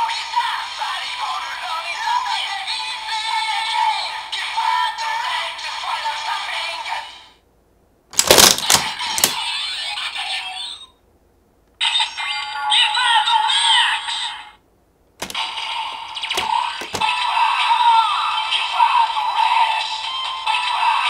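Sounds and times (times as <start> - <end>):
toy electronic sound effects: 15.2 - 18.4.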